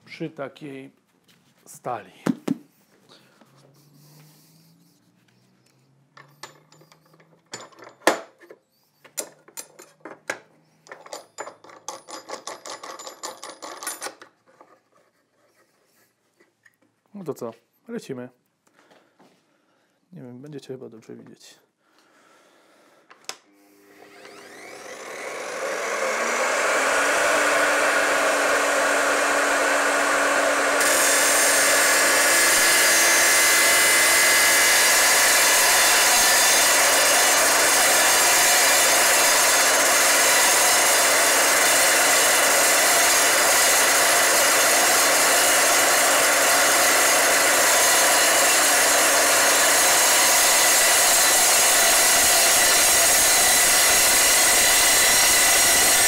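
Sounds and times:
saw motor whine: 23.5 - 56.0
saw cutting steel sheet: 23.8 - 56.0.

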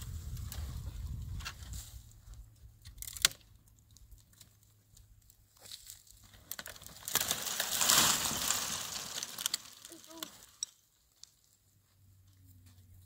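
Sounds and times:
branches scraping on gravel: 4.6 - 11.6
tree sliding down slope: 6.3 - 10.6
sharp crack: 6.6 - 10.6.

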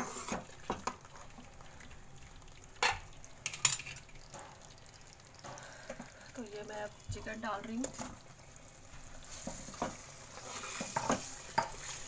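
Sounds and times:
metal spoon scraping pan: 0.0 - 0.5, 9.3 - 12.0
gravy sizzling faintly: 0.0 - 12.0.

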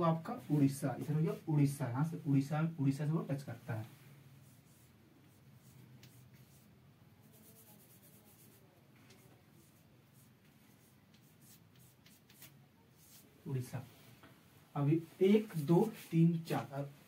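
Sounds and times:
chalk scratching on blackboard: 4.4 - 13.3.

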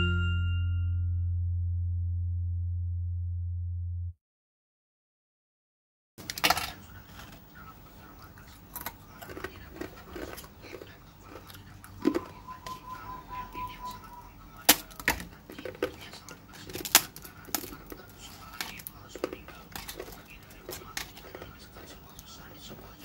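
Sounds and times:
crispy crepes crackling: 14.1 - 23.0.

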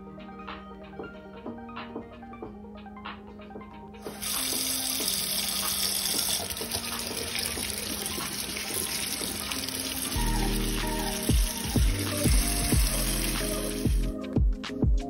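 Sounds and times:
background music: 0.0 - 15.0
tap water running into colander: 4.0 - 14.2.

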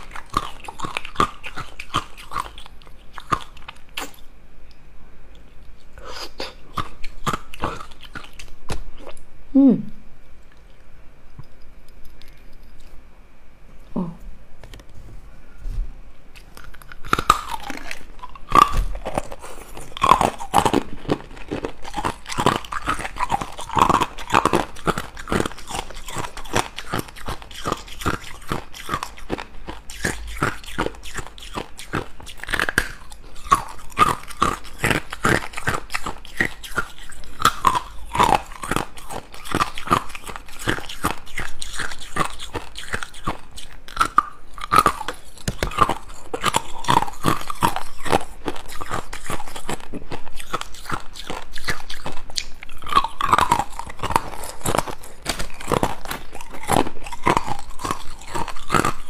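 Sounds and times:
ice cubes crunched between teeth: 16.4 - 59.0.

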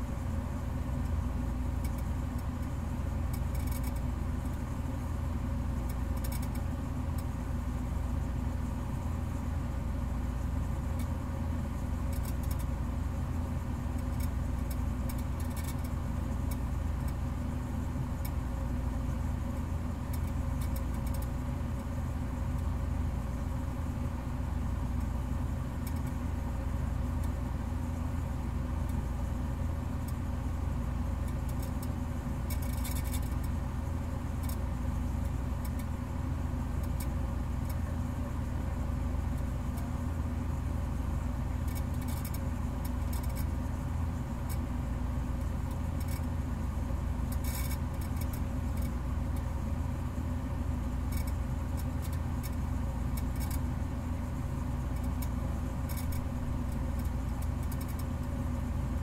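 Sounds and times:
low mechanical hum: 0.0 - 59.0.

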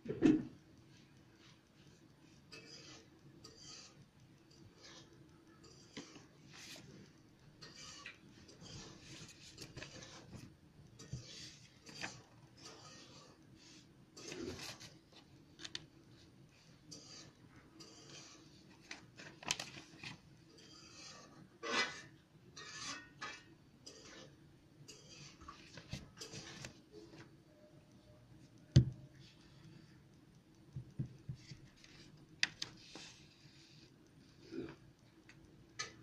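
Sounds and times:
faint rubbing and scratching: 1.5 - 4.0, 4.6 - 15.3, 16.2 - 19.3, 20.0 - 27.2.

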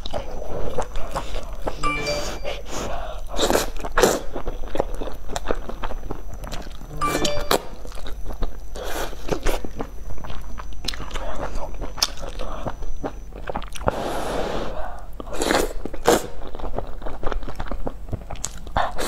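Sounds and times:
wet chewing: 0.0 - 1.8, 15.2 - 19.0.

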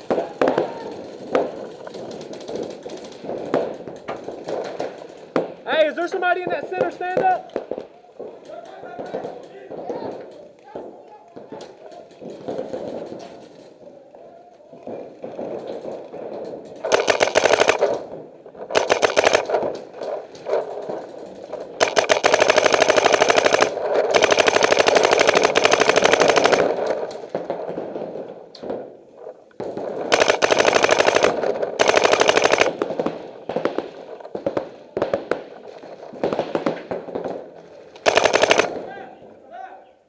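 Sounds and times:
paintball marker firing bursts: 16.8 - 18.1, 18.7 - 20.9, 21.8 - 27.2, 30.0 - 33.8, 38.0 - 38.9.

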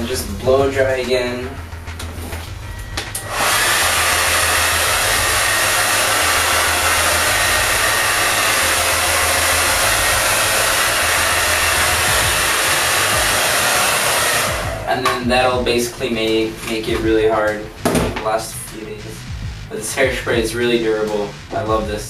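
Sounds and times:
hair dryer blowing: 3.1 - 15.2.

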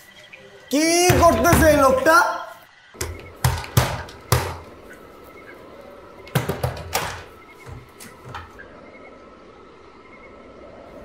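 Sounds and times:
door rattling: 1.0 - 2.1, 3.0 - 4.9, 6.1 - 8.6
fists banging on wooden door: 1.1 - 2.0, 3.0 - 4.7, 6.3 - 8.6.

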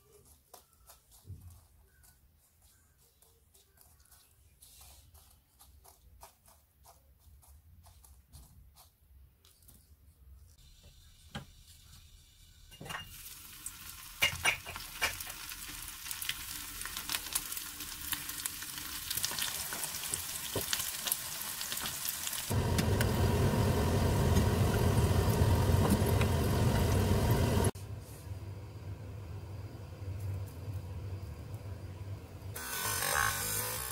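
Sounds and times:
food deep-frying in oil: 10.6 - 27.8.

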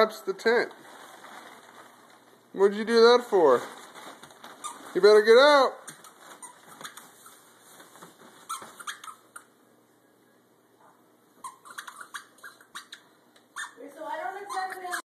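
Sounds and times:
nylon fabric rustling: 0.6 - 8.8.

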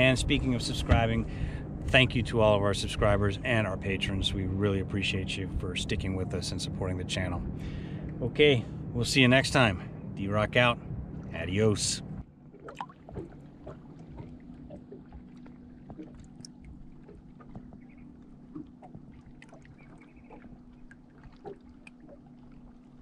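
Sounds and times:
ripples lapping against boat hull: 0.0 - 4.4, 12.2 - 23.0.

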